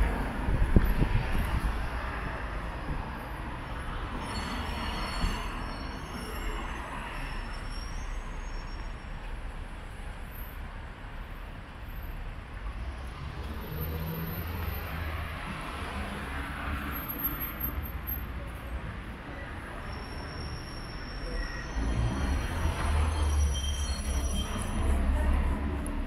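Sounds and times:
thin high squeal: 0:19.8 - 0:25.1.

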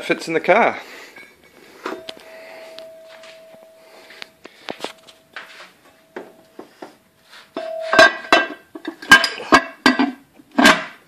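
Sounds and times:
metal-on-metal knocks and clinks: 0:07.6 - 0:11.0.

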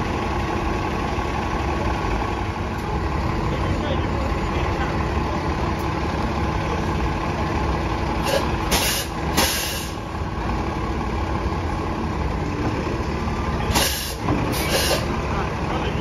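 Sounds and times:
bus engine idling: 0:00.0 - 0:16.0
air brake hisses: 0:08.2 - 0:10.0, 0:13.7 - 0:15.1.

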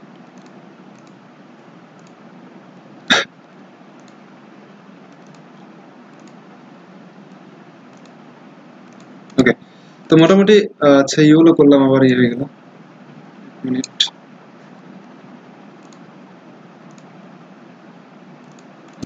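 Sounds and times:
microphone background hiss: 0:00.0 - 0:19.0
computer mouse clicks: 0:00.1 - 0:01.2, 0:02.0 - 0:02.2, 0:04.0 - 0:04.2, 0:05.1 - 0:05.5, 0:06.1 - 0:06.4, 0:07.3 - 0:08.2, 0:08.8 - 0:09.4, 0:15.8 - 0:16.1, 0:16.8 - 0:17.1, 0:18.4 - 0:19.0.

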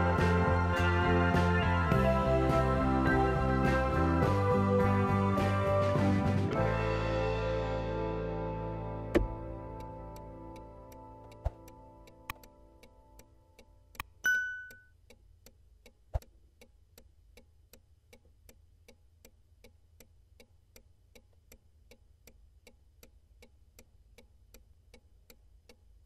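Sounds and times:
low knock: 0:09.1 - 0:09.4
soft clock-like ticking: 0:09.2 - 0:26.0
click and bell ding: 0:14.2 - 0:14.9.

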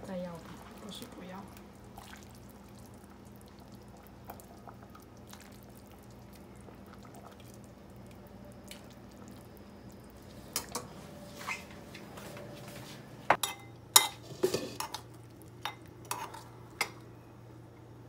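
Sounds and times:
steady low hum: 0:00.0 - 0:18.0
broth dripping into a bowl: 0:00.6 - 0:10.8.

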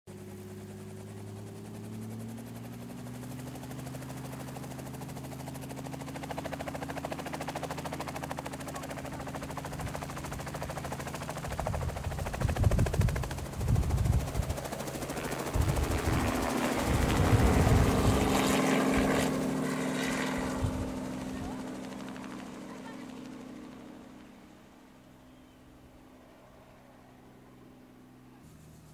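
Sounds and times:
helicopter engine tone: 0:00.1 - 0:28.9
helicopter rotor blades beating: 0:00.1 - 0:28.9
wind buffeting microphone: 0:11.5 - 0:19.2, 0:20.4 - 0:21.4.

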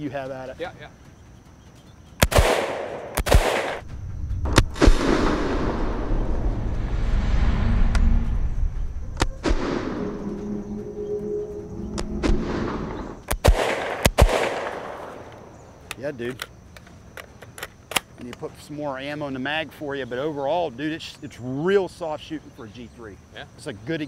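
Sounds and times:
rifle shots: 0:02.2 - 0:03.9, 0:04.5 - 0:06.1, 0:09.2 - 0:10.1, 0:12.2 - 0:15.4
long low rumble: 0:03.8 - 0:12.3.

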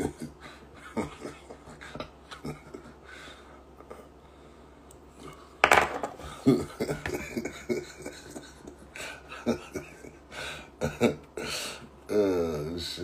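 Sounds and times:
man laughing: 0:00.0 - 0:03.2, 0:06.2 - 0:11.8.

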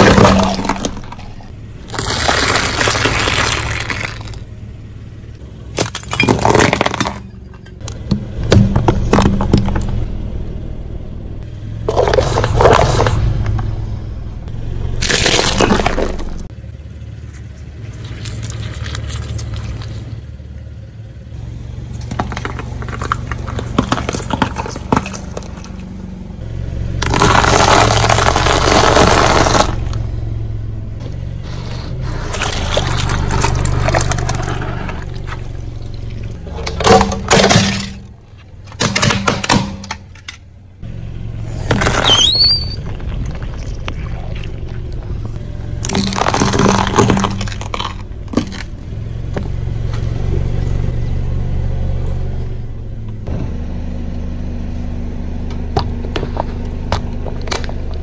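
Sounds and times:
tyre crushing eggs and fruit: 0:00.0 - 0:04.5, 0:05.6 - 0:10.0, 0:11.8 - 0:13.2, 0:15.0 - 0:16.5, 0:17.3 - 0:20.2, 0:21.9 - 0:26.0, 0:26.9 - 0:30.0, 0:31.0 - 0:40.4, 0:41.4 - 0:50.5
car low hum: 0:00.0 - 0:58.0.

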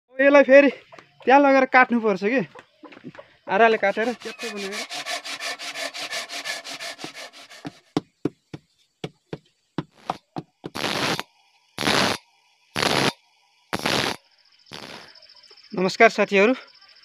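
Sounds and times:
bench grinder grinding metal: 0:03.7 - 0:07.8
handsaw cutting wood: 0:03.7 - 0:08.0.

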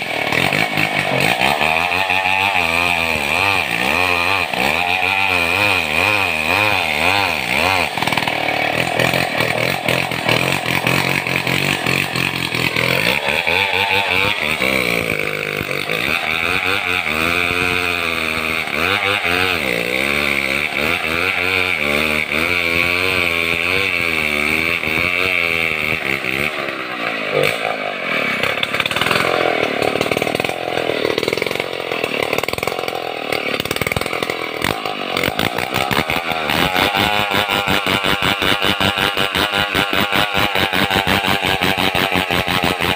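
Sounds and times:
chainsaw cutting log: 0:00.0 - 0:42.9.

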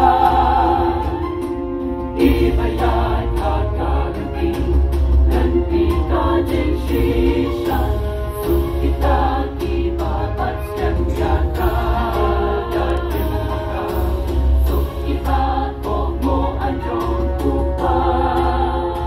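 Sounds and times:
choir singing a hymn: 0:00.0 - 0:19.0.

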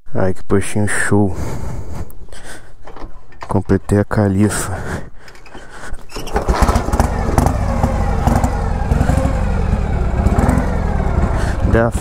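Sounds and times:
motorcycle engine starting and idling: 0:05.5 - 0:12.0.

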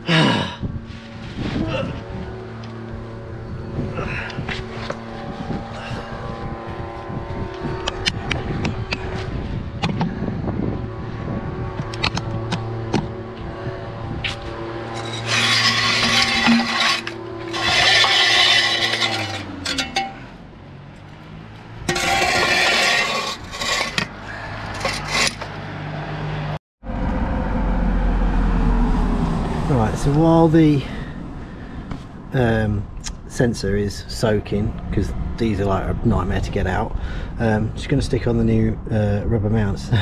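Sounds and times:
engine hum: 0:00.0 - 0:40.0
metal tools clinking on exhaust: 0:14.9 - 0:20.4.

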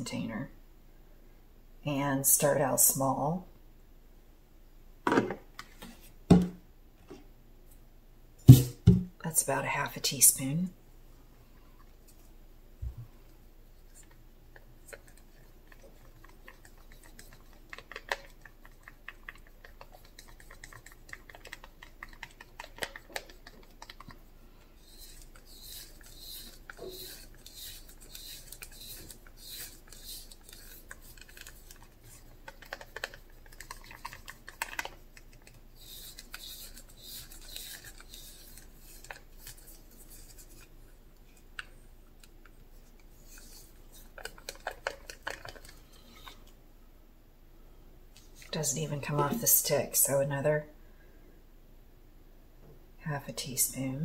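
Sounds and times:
stick scraping plastic cup: 0:24.8 - 0:40.7, 0:42.9 - 0:46.4.

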